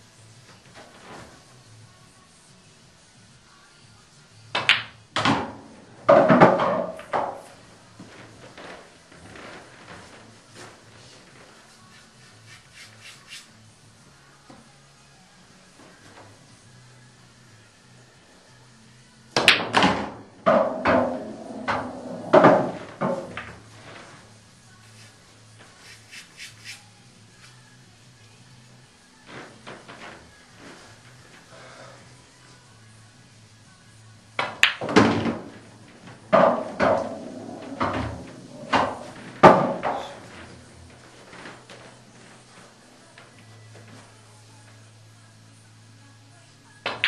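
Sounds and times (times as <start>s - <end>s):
ball dropping into pocket: 4.6s - 7.4s, 34.4s - 35.5s
ball clacking on ball: 4.6s - 7.6s, 34.4s - 35.6s, 36.3s - 40.5s
pool cue striking ball: 4.6s - 7.6s, 19.4s - 23.9s, 34.4s - 40.6s
ball rolling inside table: 4.6s - 11.5s, 19.4s - 24.2s, 34.4s - 42.6s.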